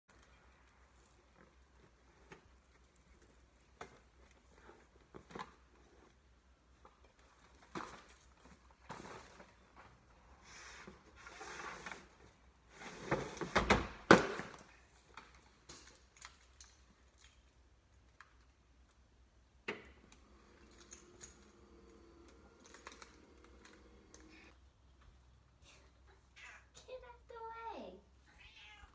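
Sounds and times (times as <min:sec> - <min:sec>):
liftgate motor humming: 0:19.7 - 0:24.5.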